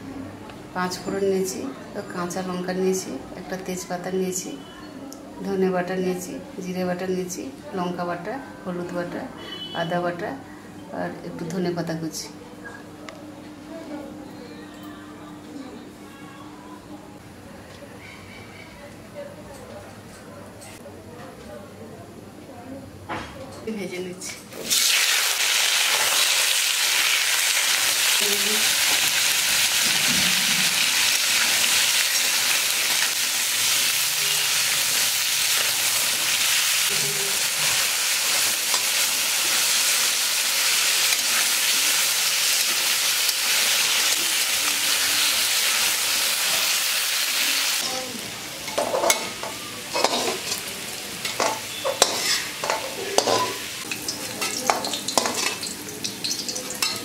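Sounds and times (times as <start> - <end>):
fish sizzling in hot oil: 24.6 - 48.1.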